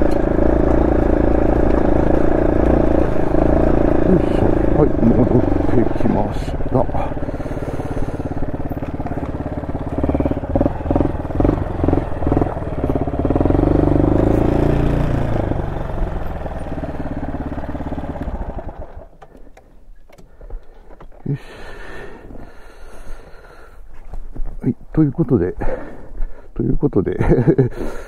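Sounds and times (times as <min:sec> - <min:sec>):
motorcycle engine revving: 0:00.0 - 0:19.2.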